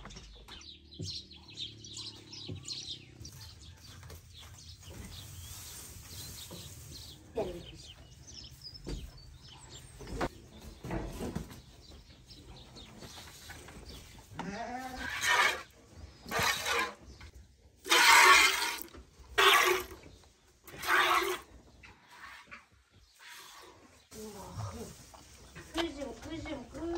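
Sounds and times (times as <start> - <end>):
milk spurting into plastic bucket: 17.9 - 20.0.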